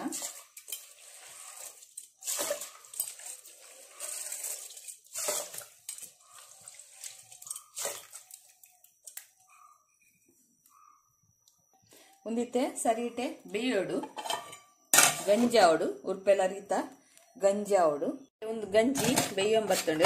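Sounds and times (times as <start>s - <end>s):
water sloshing in a pot: 0.0s - 9.5s.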